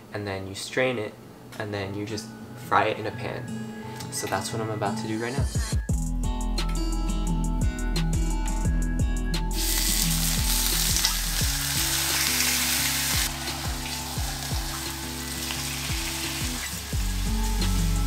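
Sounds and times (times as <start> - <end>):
music with steady beat: 5.3 - 18.0
meat sizzling in hot oil: 9.6 - 18.0.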